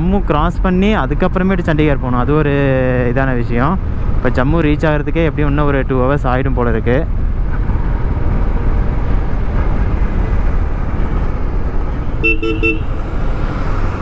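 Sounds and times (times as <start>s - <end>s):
wind: 0.0s - 14.0s
vehicle horn toots: 12.2s - 13.0s.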